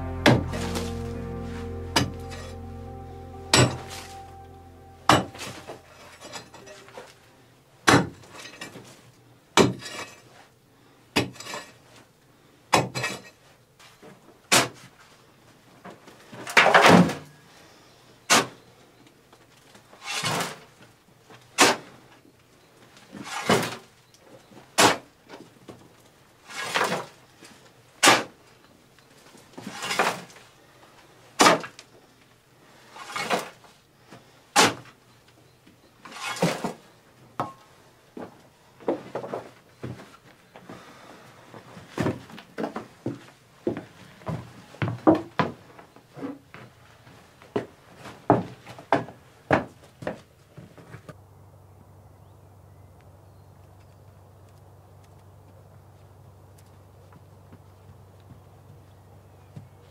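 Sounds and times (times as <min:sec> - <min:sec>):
shovel scraping stony earth: 0:36.1 - 0:36.6.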